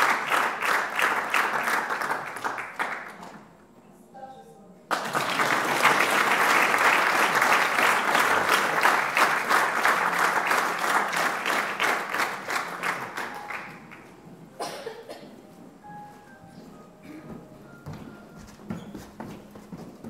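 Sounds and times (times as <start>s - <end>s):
audience applauding: 0.0s - 3.2s, 4.9s - 14.2s.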